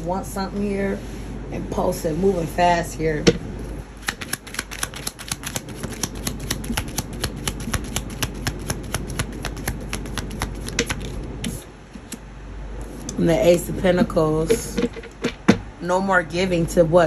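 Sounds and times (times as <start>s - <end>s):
cards being shuffled: 4.0s - 12.2s.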